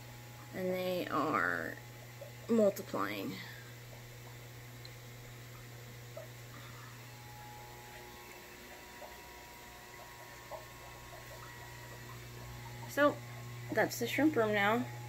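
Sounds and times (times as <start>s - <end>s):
electrical hum: 0.0s - 15.0s
faint ticks: 3.9s - 6.4s.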